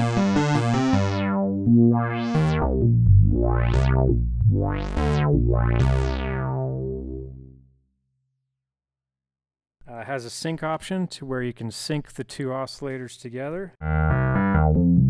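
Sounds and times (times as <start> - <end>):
synthesizer sustained chords: 0.0 - 7.6.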